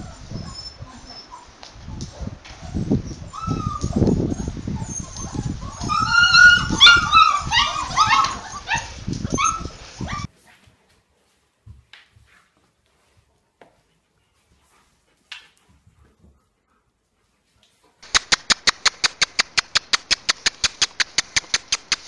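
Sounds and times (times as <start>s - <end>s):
puppies yipping and whimpering: 0.0s - 1.5s, 2.6s - 10.3s.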